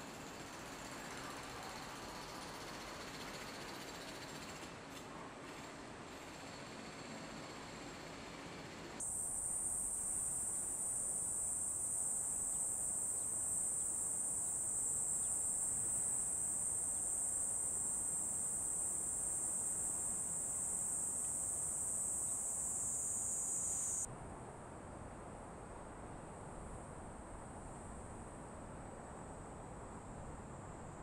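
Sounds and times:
high-pitched insect chorus: 0:00.1 - 0:04.5, 0:09.0 - 0:24.1.

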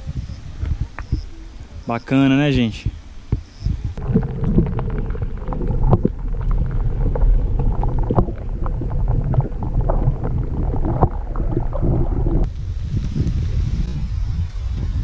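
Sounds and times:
muffled underwater rumble: 0:02.8 - 0:15.0
small underwater clicks and knocks: 0:03.3 - 0:13.4.

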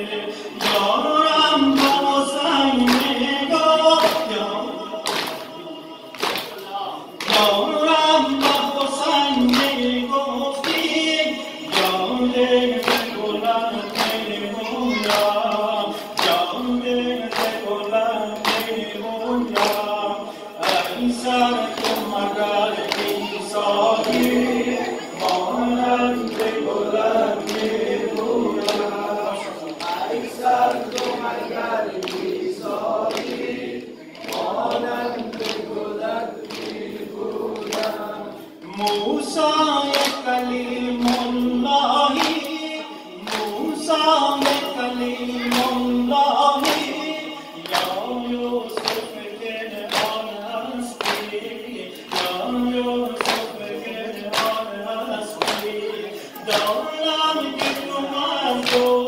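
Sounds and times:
man chanting a lament: 0:00.0 - 0:32.8, 0:34.0 - 0:59.0
men singing along: 0:00.0 - 0:59.0
chest-beating slaps: 0:05.0 - 0:07.6.

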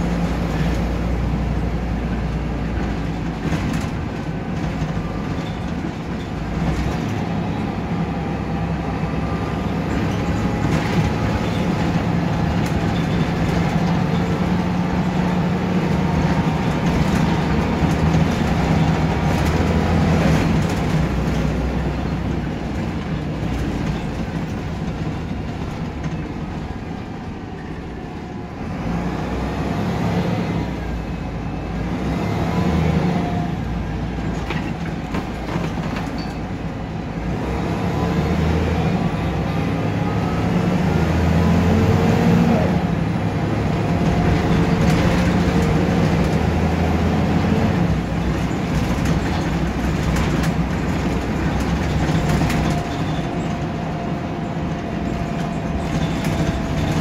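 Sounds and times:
bus diesel engine running: 0:00.0 - 0:57.0
light body rattles: 0:48.0 - 0:57.0.

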